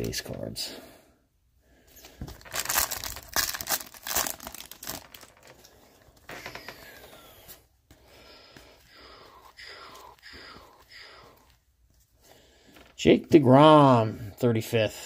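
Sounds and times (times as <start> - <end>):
cards rustling: 2.0 - 6.3
foil wrapper tearing and crinkling: 2.4 - 5.6.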